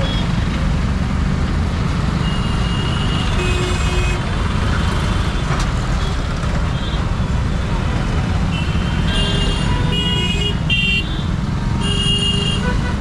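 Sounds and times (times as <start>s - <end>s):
traffic engines and road noise: 0.0s - 13.0s.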